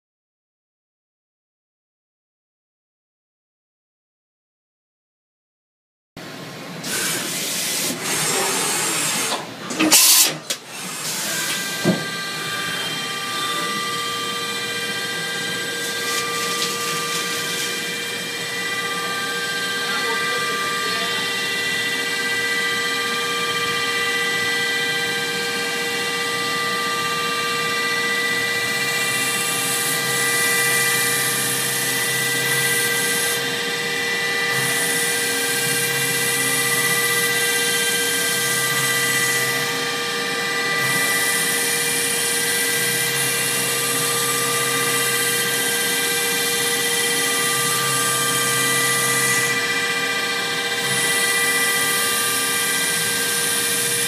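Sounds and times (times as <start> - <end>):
cutter hissing in metal: 6.8 - 12.5
milling spindle whine: 10.5 - 54.0.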